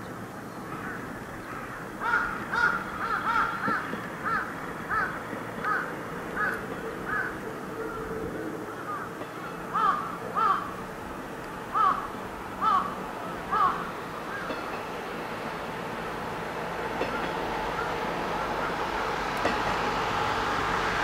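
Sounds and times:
faint diesel railcar drone: 0:00.0 - 0:21.0
crows cawing: 0:00.7 - 0:10.8, 0:11.7 - 0:14.6.

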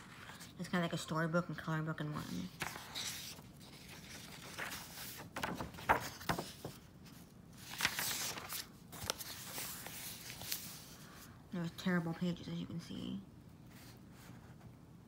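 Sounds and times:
paper pages rustling: 0:02.2 - 0:11.3.

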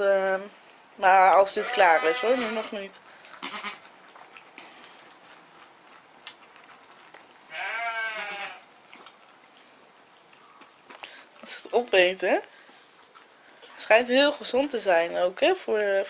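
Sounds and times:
goat bleating: 0:01.5 - 0:03.8, 0:07.5 - 0:08.6.

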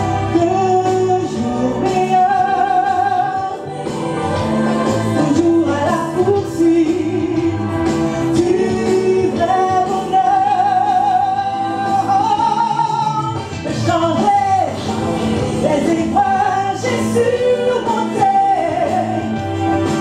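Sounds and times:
woman singing gospel song: 0:00.3 - 0:07.7, 0:15.6 - 0:19.4.

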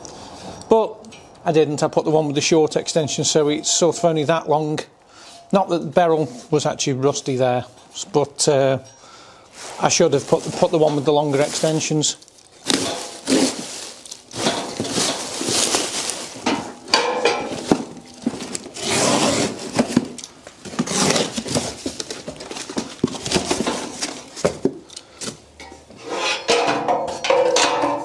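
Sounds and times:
packaging rustling and crinkling: 0:09.5 - 0:25.4.

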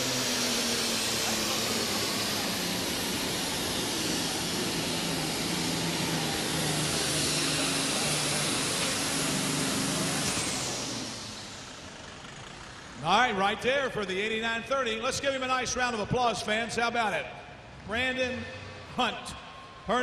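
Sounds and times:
tractor engine under load: 0:00.0 - 0:13.1.

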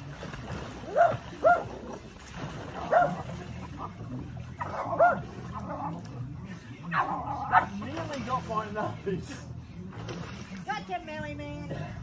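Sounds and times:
small dog barking: 0:00.9 - 0:01.7, 0:02.9 - 0:03.2, 0:04.6 - 0:05.3.

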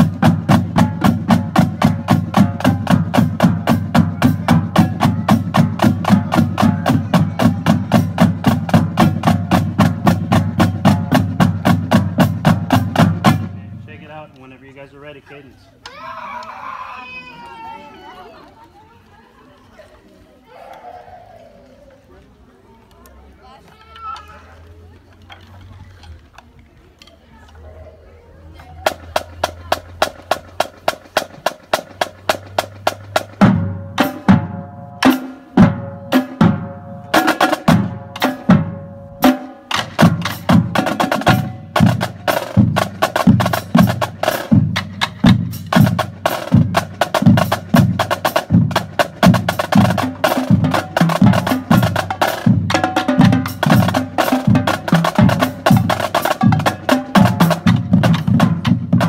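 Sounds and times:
marching drumline playing: 0:00.0 - 0:15.2, 0:28.8 - 0:59.0.

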